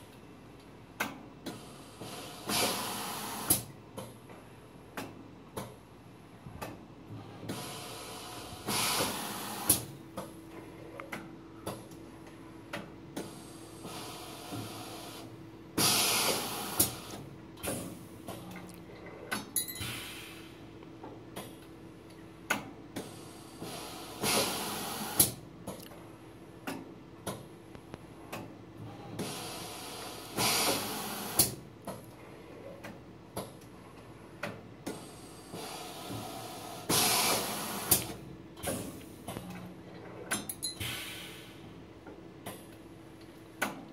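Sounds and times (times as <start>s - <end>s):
pneumatic cylinders hissing: 1.5s - 3.7s, 7.4s - 10.0s, 13.2s - 18.0s, 23.0s - 25.4s, 29.1s - 31.6s, 34.9s - 39.0s, 40.8s - 41.7s.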